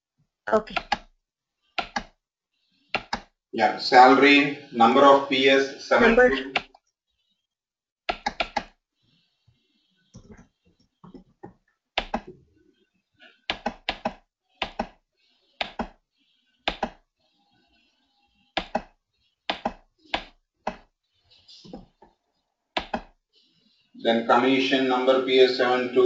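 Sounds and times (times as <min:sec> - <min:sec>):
computer keyboard keys tapping: 0:00.7 - 0:01.1, 0:01.8 - 0:02.1, 0:03.0 - 0:03.3, 0:08.1 - 0:08.7, 0:11.1 - 0:12.4, 0:13.5 - 0:15.0, 0:15.6 - 0:16.0, 0:16.7 - 0:17.0, 0:18.6 - 0:18.9, 0:19.5 - 0:20.9, 0:22.8 - 0:23.1.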